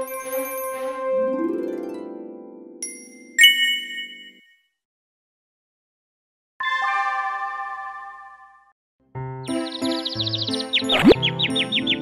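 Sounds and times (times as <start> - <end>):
bell-like musical chime: 2.8 - 4.6.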